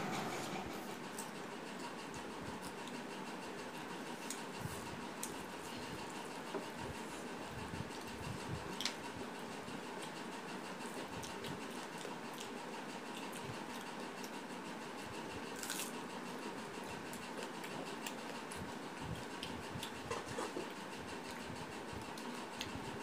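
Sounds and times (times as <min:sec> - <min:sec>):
fingers mixing rice on plates: 0:17.2 - 0:22.8.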